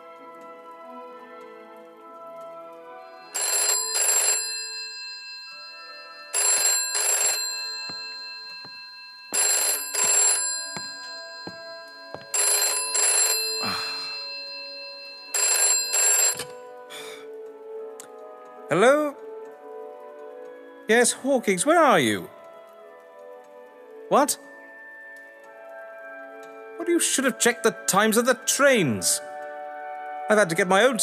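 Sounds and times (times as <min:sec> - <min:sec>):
telephone double ring: 0:03.3 - 0:16.7.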